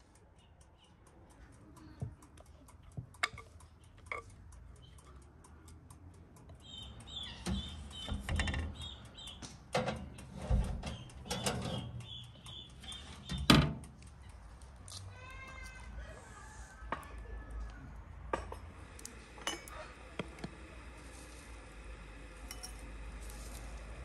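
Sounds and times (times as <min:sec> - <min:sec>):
fast steady ticking: 0:00.0 - 0:15.5
small birds chirping: 0:00.0 - 0:15.6
oven door thuds and knocks: 0:07.5 - 0:08.8, 0:09.8 - 0:11.8.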